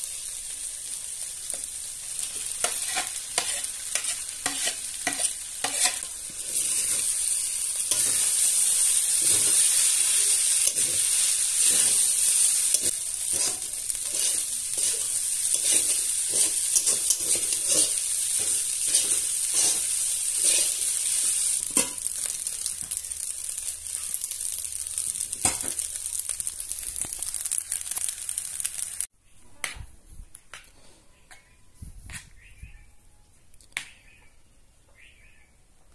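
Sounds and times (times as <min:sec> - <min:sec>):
food sizzling in a pan: 0:00.0 - 0:29.1
metal spatula scraping: 0:02.2 - 0:22.2.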